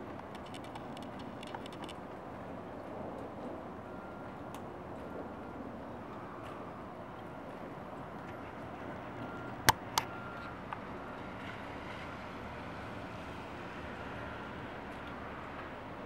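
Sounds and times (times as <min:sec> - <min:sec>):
low outdoor rush: 0:00.0 - 0:16.0.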